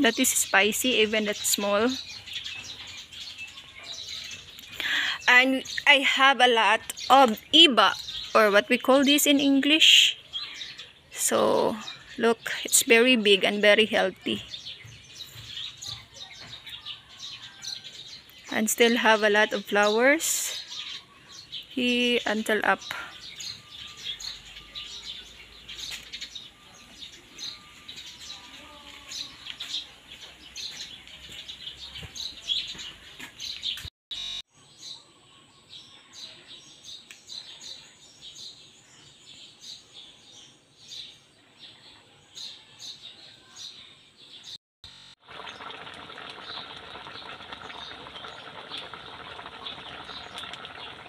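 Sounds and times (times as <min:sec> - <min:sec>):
small birds chirping: 0:00.0 - 0:44.6, 0:45.4 - 0:51.0
food simmering in a wok: 0:45.2 - 0:51.0.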